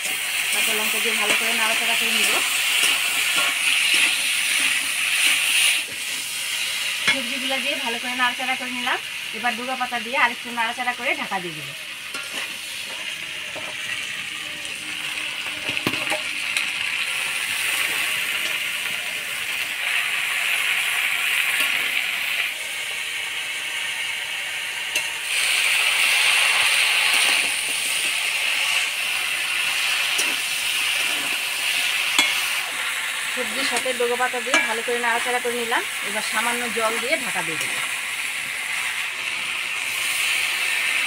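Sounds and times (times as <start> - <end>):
vegetables sizzling in hot oil: 0.0 - 41.0
utensil clinking against pan: 32.2 - 32.4, 34.5 - 34.8.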